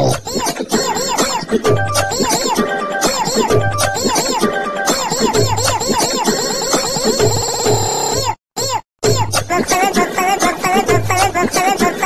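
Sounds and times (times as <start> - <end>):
music with repeating melody and bass beat: 1.7 - 6.3.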